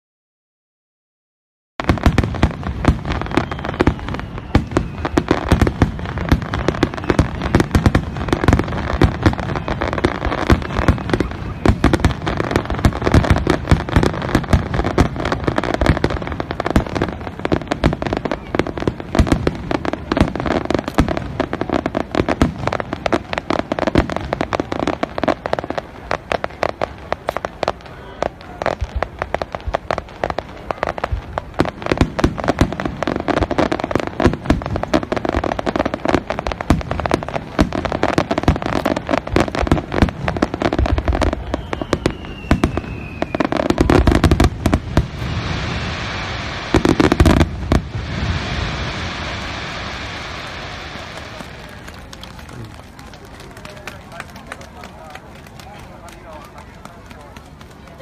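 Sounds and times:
fireworks bangs and crackles: 1.8s - 58.0s
faint falling whistle: 3.1s - 5.4s, 41.4s - 43.5s
deep firework boom: 38.4s - 51.6s.

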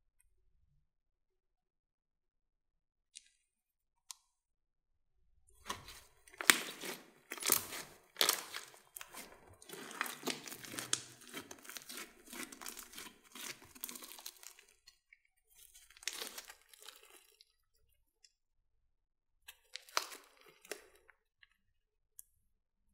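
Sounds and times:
sticky slime crackles and pops: 5.7s - 14.8s, 15.9s - 17.3s.

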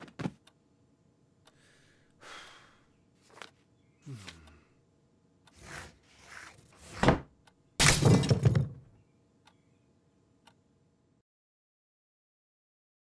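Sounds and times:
book pages turning: 5.6s - 7.2s.

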